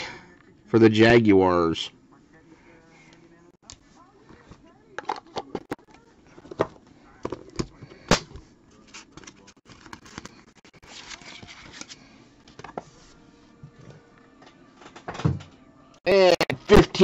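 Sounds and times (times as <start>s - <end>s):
cards sliding rustle: 8.8s - 12.9s.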